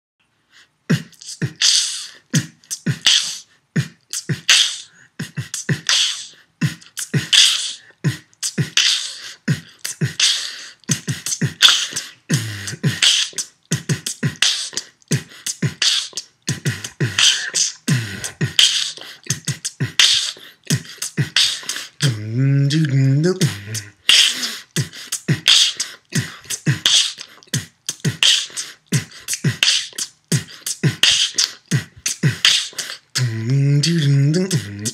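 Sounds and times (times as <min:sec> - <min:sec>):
beatboxing: 0:00.9 - 0:34.9
hummed bass notes: 0:33.2 - 0:34.9.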